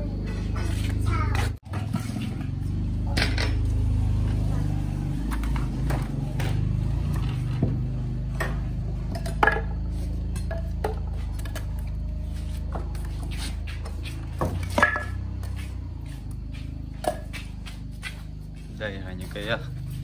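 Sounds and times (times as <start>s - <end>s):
metallic clinks and knocks: 14.2s - 15.6s.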